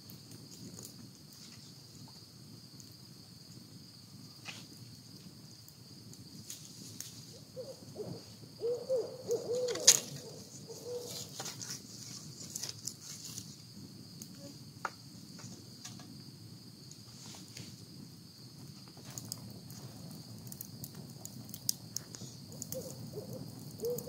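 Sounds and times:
campfire crackling and popping: 0.0 - 8.6, 9.7 - 24.0
high insect trill: 0.0 - 24.0
owl hooting: 7.6 - 11.3, 22.6 - 24.0.

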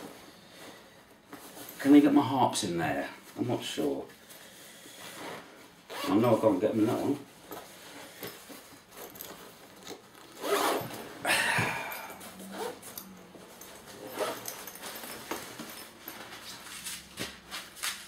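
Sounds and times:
bag handling noises: 0.0 - 18.0
zipper being pulled: 5.1 - 6.4, 9.0 - 11.2, 12.1 - 15.8.

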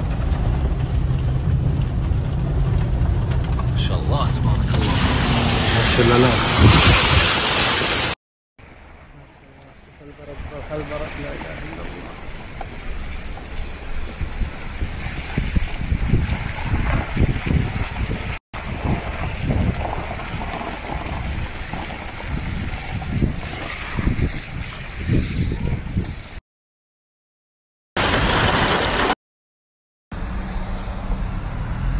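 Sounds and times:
vehicle rushing over wet ground: 0.0 - 24.6
low rumbles: 0.0 - 26.4
water splashing: 4.7 - 26.4.

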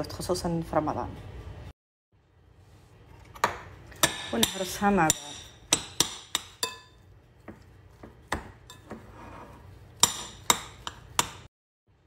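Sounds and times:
spoon mashing potatoes: 4.0 - 11.5
spoon clinking on glass bowl: 5.2 - 7.0.

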